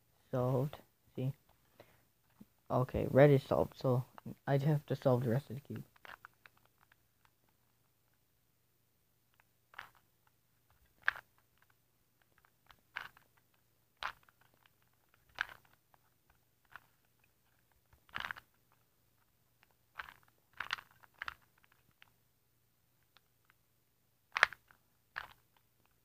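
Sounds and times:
puzzle cube layers clicking: 0:04.0 - 0:08.2, 0:09.3 - 0:22.2, 0:24.2 - 0:26.0.

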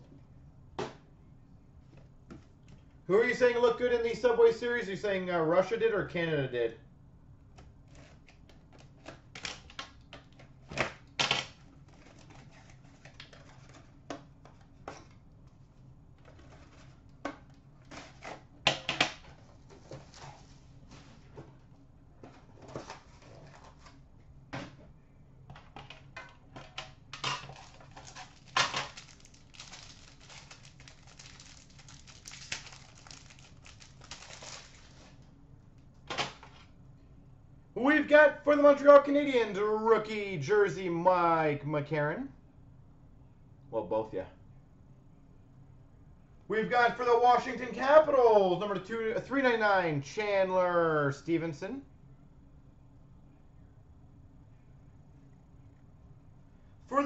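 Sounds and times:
packaging rustling: 0:11.6 - 0:14.6, 0:27.3 - 0:35.2.

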